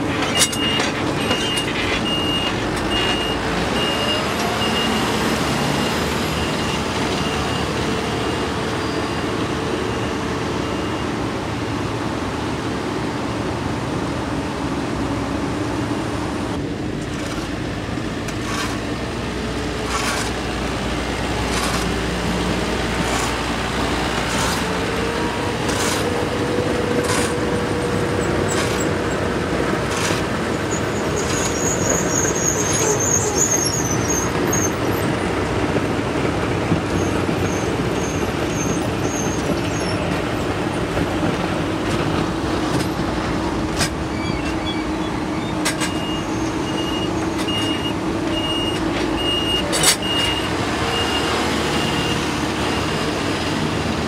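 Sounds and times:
diesel machinery running: 0.0 - 54.0
broom sweeping asphalt: 18.3 - 27.5, 29.8 - 30.4
high squeal: 30.7 - 34.8, 44.0 - 47.8.

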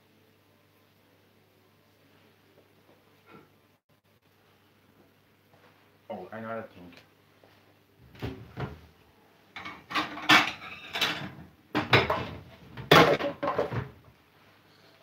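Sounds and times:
kitchen cupboard opening and shutting: 8.1 - 8.9, 9.6 - 14.0
ceramic plates clattering: 9.6 - 13.9.

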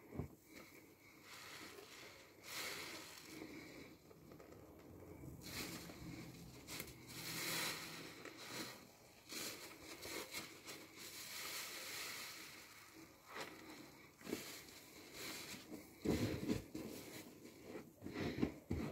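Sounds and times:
sponge squelching in soapy foam: 0.1 - 3.9, 5.1 - 18.9.

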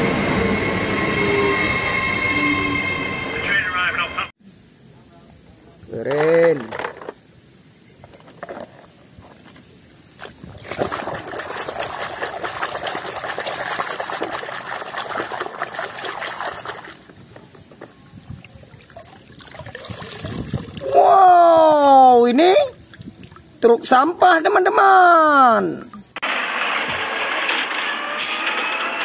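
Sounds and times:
water sloshing and splashing: 10.1 - 20.9, 22.6 - 23.6
water dripping and trickling: 10.2 - 17.6, 18.2 - 20.9, 22.3 - 23.9.

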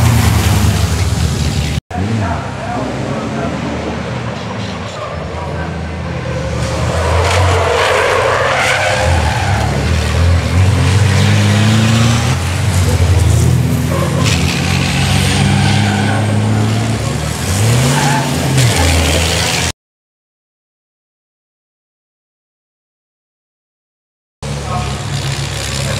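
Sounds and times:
racing trucks engines: 0.0 - 19.8, 24.4 - 25.9
tyres on gravel: 6.1 - 19.7.

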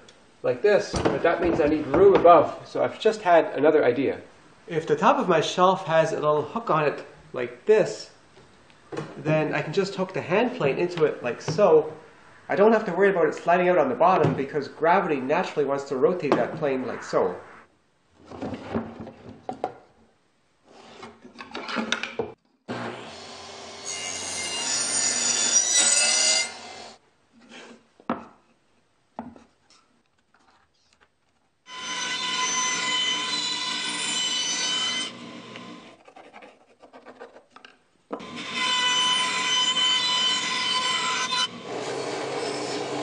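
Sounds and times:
power saw cutting wood: 22.7 - 27.0, 38.2 - 43.0.

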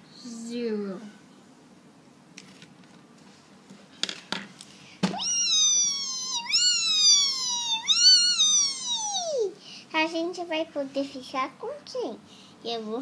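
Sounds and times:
marker squeaking on whiteboard: 5.2 - 9.2.

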